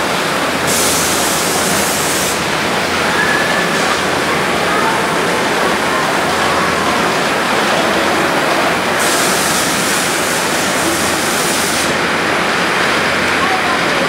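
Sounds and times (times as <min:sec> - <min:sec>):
loud rushing noise: 0:00.0 - 0:14.0
small train rolling past: 0:00.0 - 0:14.0
sharp hiss: 0:00.6 - 0:02.6, 0:09.0 - 0:12.0.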